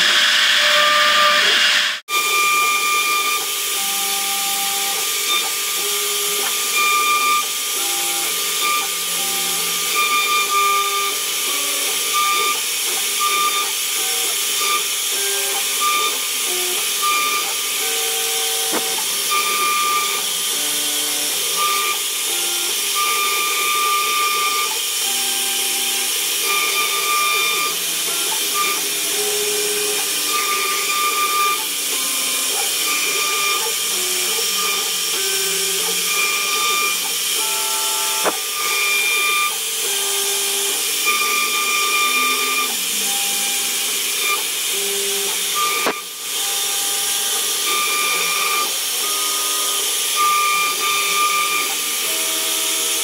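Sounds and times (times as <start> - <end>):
machine whining tones: 0.0 - 53.0
router spindle hiss: 1.5 - 53.0.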